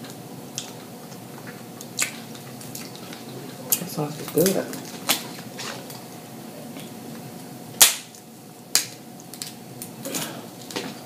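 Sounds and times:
crab shells cracking: 0.5s - 6.0s, 7.8s - 10.0s.

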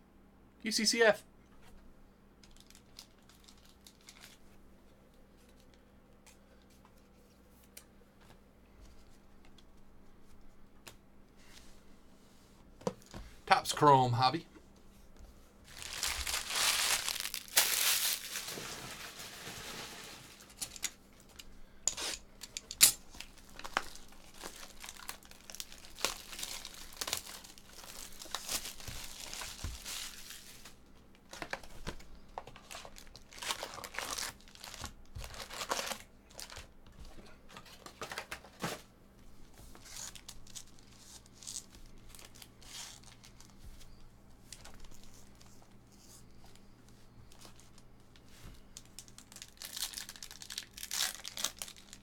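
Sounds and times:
foil card packs handled: 2.4s - 4.4s, 15.6s - 22.2s, 23.0s - 38.9s, 39.5s - 52.0s
plastic wrap tearing and crinkling: 2.4s - 4.4s, 15.7s - 20.7s, 23.1s - 36.8s, 39.8s - 43.6s, 48.7s - 52.0s.

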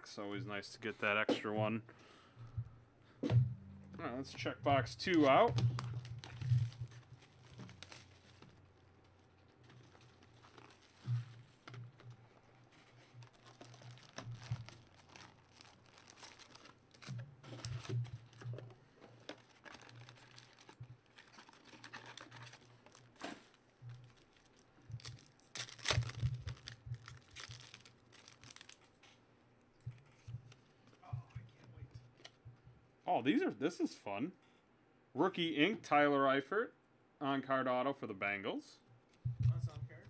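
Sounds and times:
foil wrappers crinkling and tearing: 5.0s - 29.2s.

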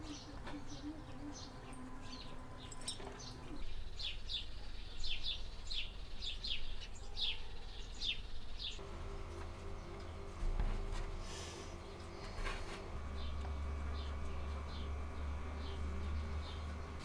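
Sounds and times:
small birds chirping: 0.0s - 8.8s, 11.8s - 17.0s.

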